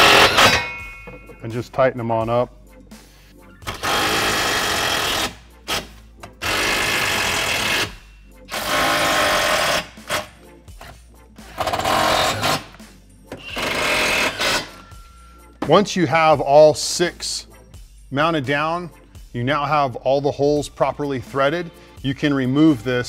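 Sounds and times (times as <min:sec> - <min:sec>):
impact driver hammering screws: 0:00.0 - 0:00.7, 0:03.6 - 0:10.3, 0:11.5 - 0:12.8, 0:13.4 - 0:14.8.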